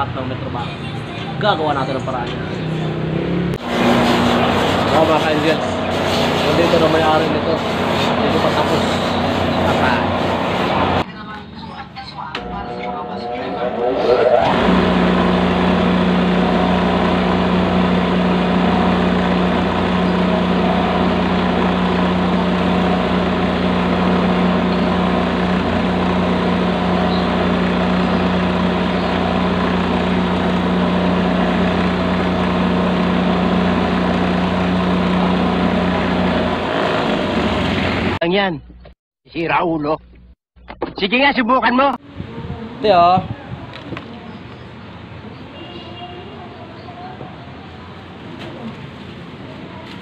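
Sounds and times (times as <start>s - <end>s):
sandal edge being sanded: 3.6s - 11.0s
sanding machine motor humming: 3.6s - 11.0s, 12.4s - 38.2s.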